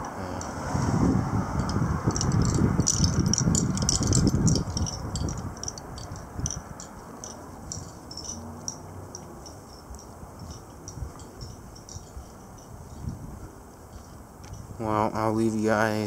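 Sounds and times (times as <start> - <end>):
gusty wind buffeting microphone: 0.0 - 16.0
fast high ticking rattle: 1.6 - 15.1.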